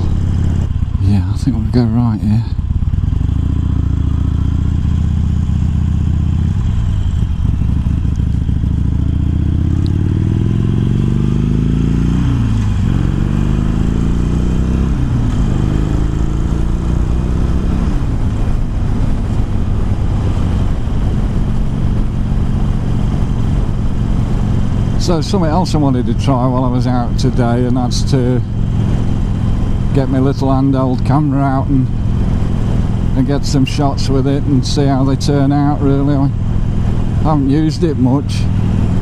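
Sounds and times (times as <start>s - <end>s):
motorcycle engine shifting gears: 0.0s - 39.0s.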